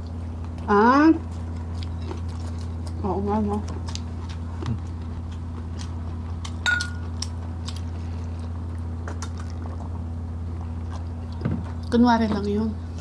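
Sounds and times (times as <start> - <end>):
eating mouth sounds: 3.9 - 10.1
tableware clink: 6.6 - 7.0.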